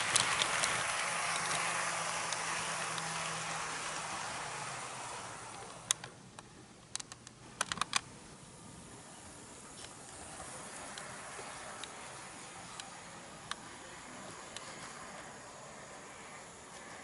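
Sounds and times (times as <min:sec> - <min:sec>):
sharp clicks from track: 0:00.0 - 0:04.4
faint motor hum: 0:00.0 - 0:17.0
wheels rolling on rail: 0:00.0 - 0:17.0.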